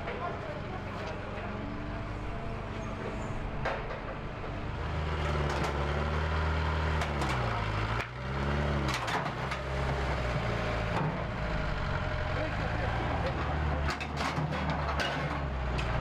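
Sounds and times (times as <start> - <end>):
sharp knocks and clatter: 3.0 - 4.6, 8.9 - 11.3, 13.1 - 16.0
vehicle engine revving: 4.3 - 16.0.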